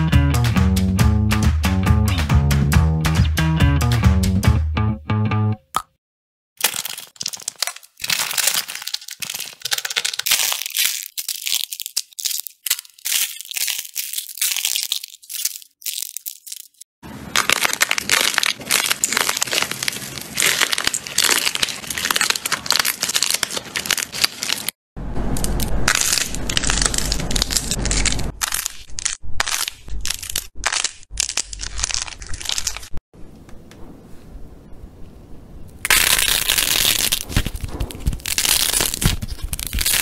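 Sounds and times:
slime crackling and popping: 6.6s - 16.8s, 17.4s - 24.8s, 25.6s - 33.0s, 35.8s - 40.0s
low rumble: 25.0s - 28.4s.

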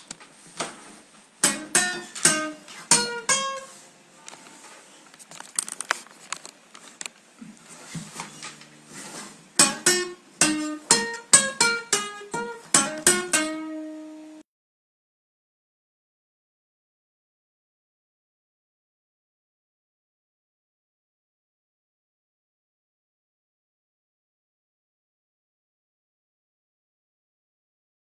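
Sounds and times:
acoustic guitar picked notes: 1.4s - 4.4s, 8.3s - 14.4s.

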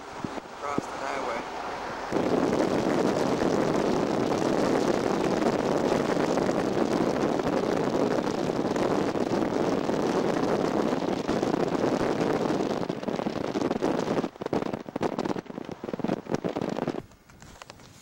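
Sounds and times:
wind rushing: 0.0s - 17.1s
road noise inside vehicle: 0.0s - 18.0s.

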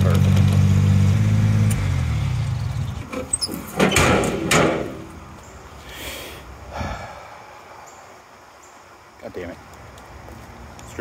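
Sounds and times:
vehicle engine running: 0.0s - 3.1s
sharp clunks and scrapes: 3.0s - 5.2s.

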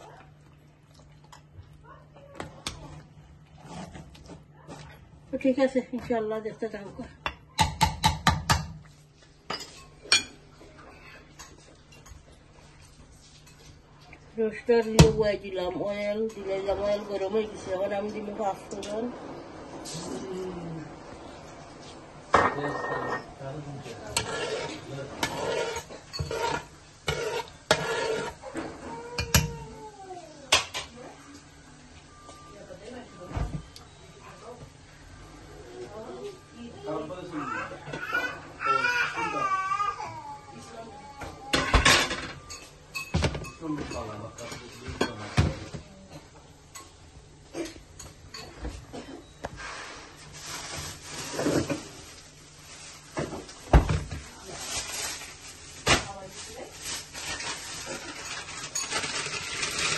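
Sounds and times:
spatula scraping metal pot: 24.1s - 28.5s.

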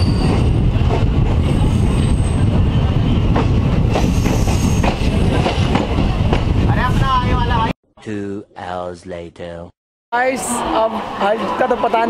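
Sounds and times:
train wheels rumbling: 0.0s - 7.6s.

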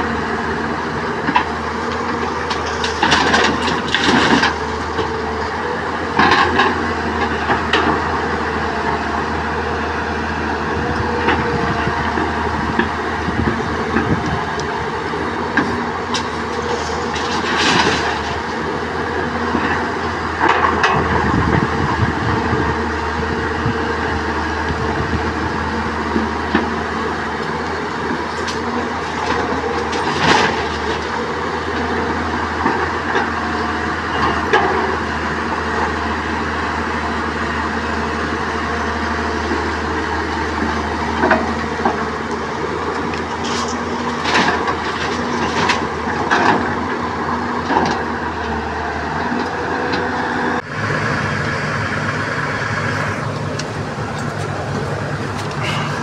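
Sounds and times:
excavator diesel engine running: 0.0s - 56.0s
engine hum inside cab: 49.4s - 56.0s.

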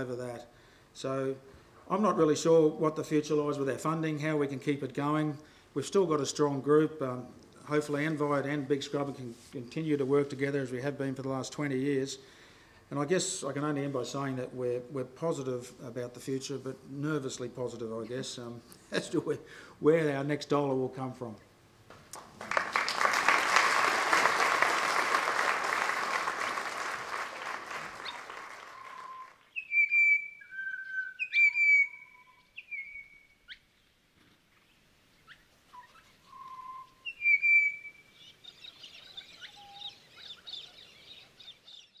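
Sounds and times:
audience applauding: 22.2s - 29.4s
high chirping chatter: 24.2s - 29.8s
whistled bird notes: 28.0s - 33.6s, 35.2s - 42.0s.

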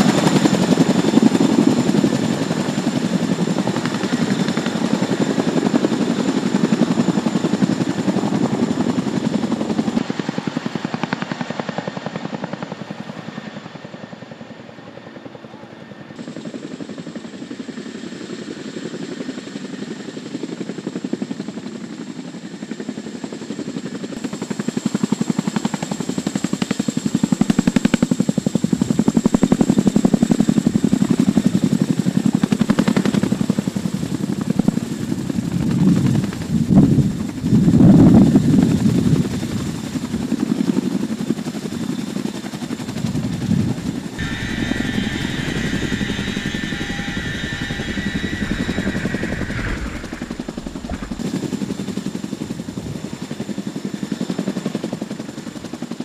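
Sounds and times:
helicopter rotors beating: 0.0s - 56.0s.

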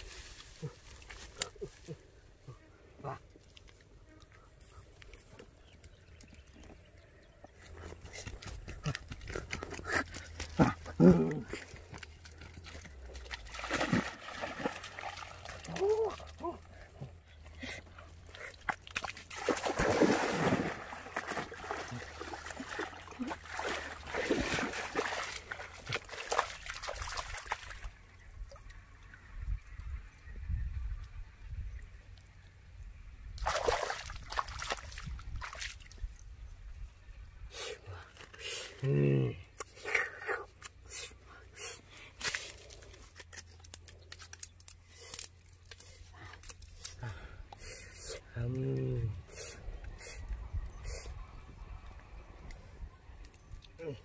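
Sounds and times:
water splashing and sloshing: 7.9s - 29.8s, 33.4s - 36.2s.

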